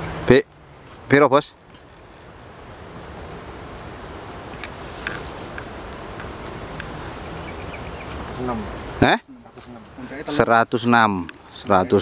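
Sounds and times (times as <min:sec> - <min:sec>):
insect chorus buzzing: 0:00.0 - 0:12.0.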